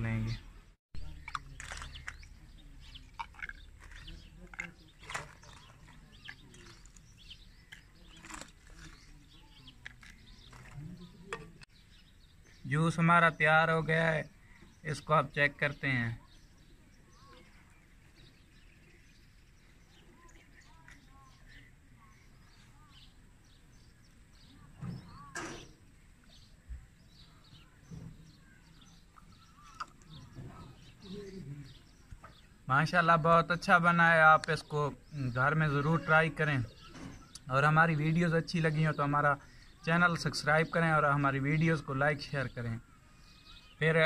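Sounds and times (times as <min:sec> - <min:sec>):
faint bird chirps: 0:15.6 - 0:33.2, 0:34.4 - 0:44.0.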